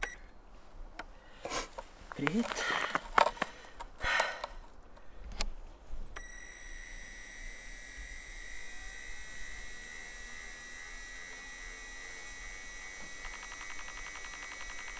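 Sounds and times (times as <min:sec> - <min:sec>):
turbine starter high-pitched whine: 0:06.2 - 0:14.9.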